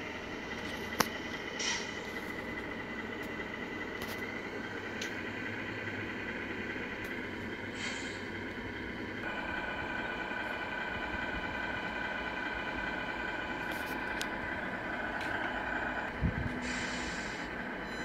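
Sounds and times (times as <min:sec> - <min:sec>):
truck diesel idling: 0:00.0 - 0:18.0
air brake hiss: 0:01.6 - 0:02.0, 0:07.7 - 0:08.3, 0:16.6 - 0:17.6.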